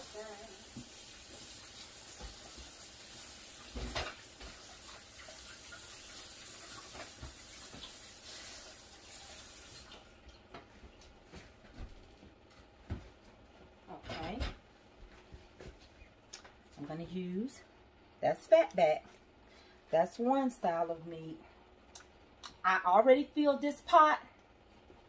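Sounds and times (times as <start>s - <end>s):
kitchen faucet running: 0.0s - 10.1s.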